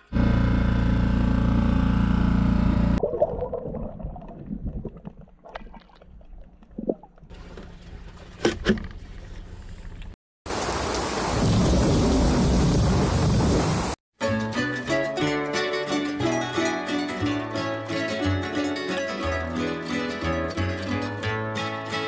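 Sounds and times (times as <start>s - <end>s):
outboard motor running: 0.0s - 3.0s
low underwater rumbling: 2.7s - 8.4s.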